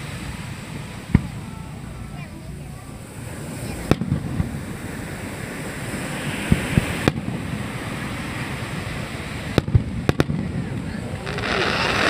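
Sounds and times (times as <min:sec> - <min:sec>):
surf washing: 0:00.0 - 0:12.0
firework shells bursting: 0:09.6 - 0:12.0.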